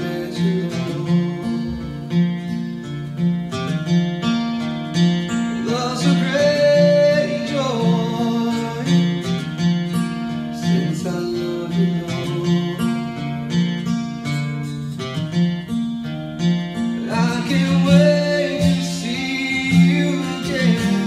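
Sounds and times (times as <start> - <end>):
person singing: 0.0 - 1.9, 5.5 - 9.4, 10.5 - 13.4, 16.9 - 21.0
acoustic guitar strumming rhythm: 0.0 - 21.0.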